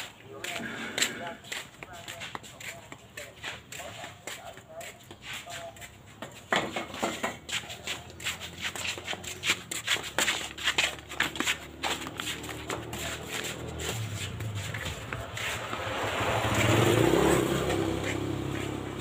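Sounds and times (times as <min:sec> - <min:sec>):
flip-flop footsteps on concrete: 0:00.0 - 0:19.0
low motor hum: 0:11.8 - 0:19.0.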